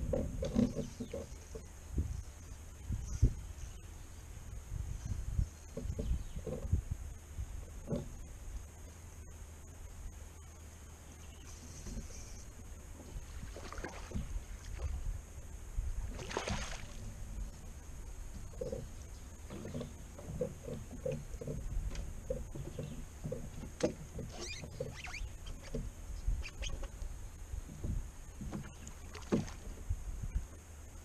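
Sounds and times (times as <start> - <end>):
knocks on boat: 27.6 - 29.8.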